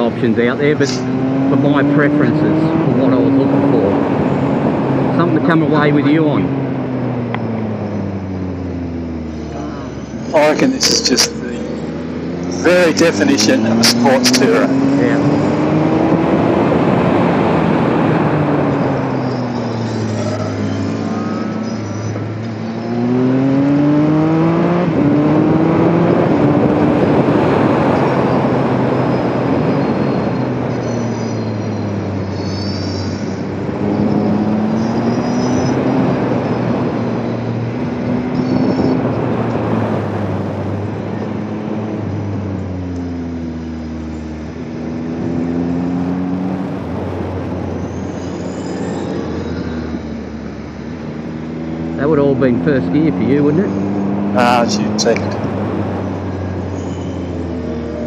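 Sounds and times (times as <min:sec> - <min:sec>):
motorcycle engine accelerating: 0:00.0 - 0:58.0
wind rush: 0:44.6 - 0:51.8.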